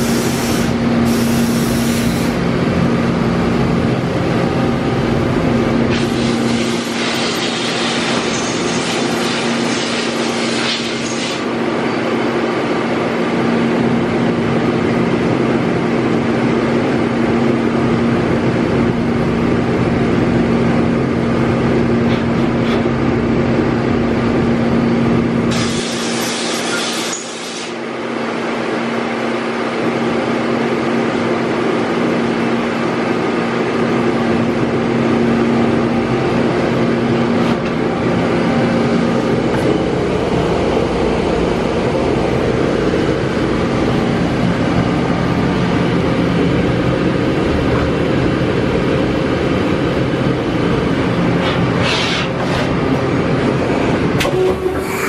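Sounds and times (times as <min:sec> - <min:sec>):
burst of hiss: 0:00.0 - 0:02.3
industrial machinery humming: 0:00.0 - 0:55.0.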